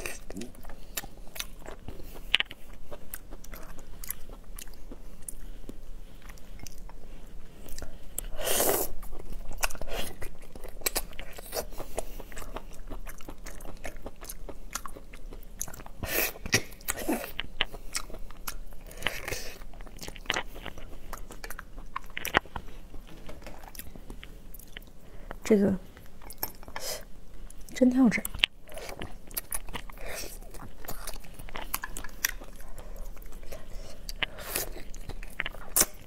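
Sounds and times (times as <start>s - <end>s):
crunchy biting and chewing: 7.6s - 24.0s, 28.3s - 36.0s.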